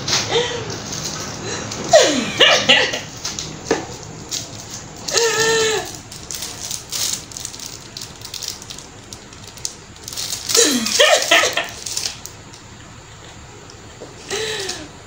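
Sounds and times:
plastic packaging crinkling: 3.2 - 12.6.

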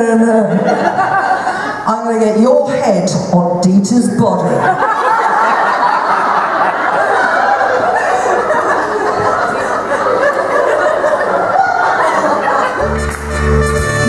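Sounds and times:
audience laughing: 0.3 - 1.9, 4.4 - 13.6.

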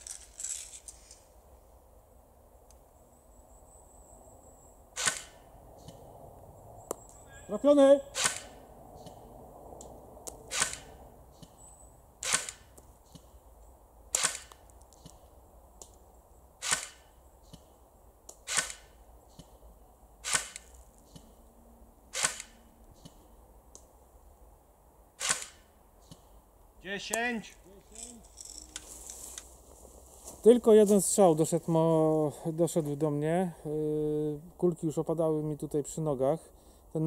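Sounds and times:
airsoft rifle shots: 5.0 - 5.4, 8.0 - 8.6, 10.5 - 11.0, 12.2 - 12.8, 14.1 - 14.6, 16.6 - 17.1, 18.4 - 19.0, 20.2 - 20.7, 22.1 - 22.6, 25.2 - 25.7.

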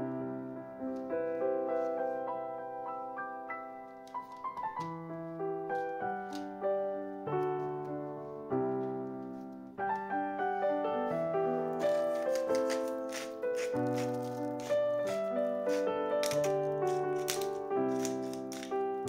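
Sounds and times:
gentle piano melody: 0.0 - 19.0.

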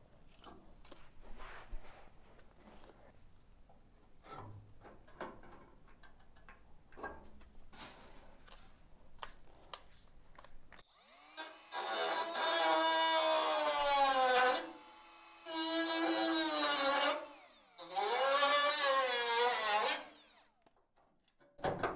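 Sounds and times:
cut-off tool cutting sheet steel: 10.8 - 20.6.

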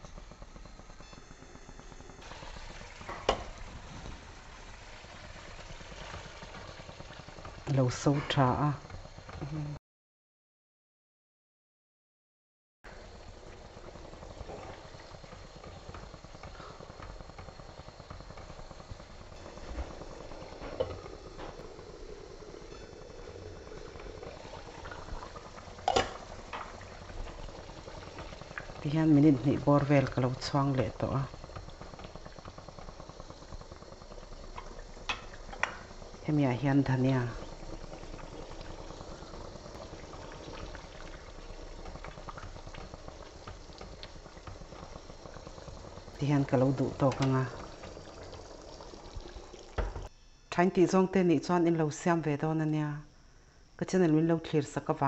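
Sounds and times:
curry bubbling: 1.7 - 9.7, 12.9 - 50.1
utensil and lid knocking pan: 25.8 - 26.7.

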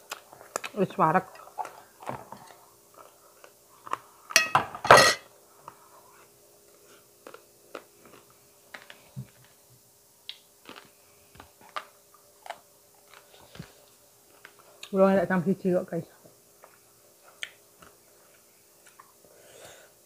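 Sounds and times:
glass plate clinking on a bowl: 4.4 - 5.2.

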